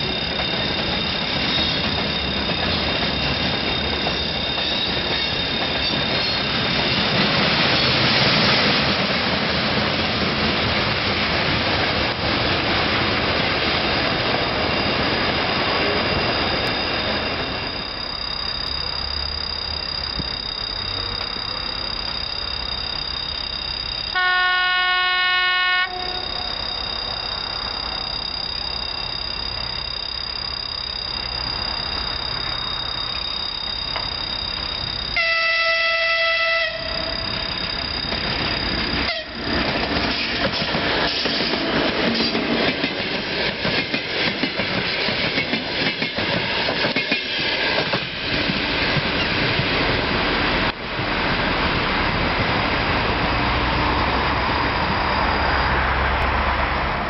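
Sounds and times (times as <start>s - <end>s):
train wheels rumbling on rails: 0.0s - 24.1s, 31.1s - 57.0s
train horn blast: 24.1s - 26.4s, 35.2s - 36.9s, 39.1s - 39.4s.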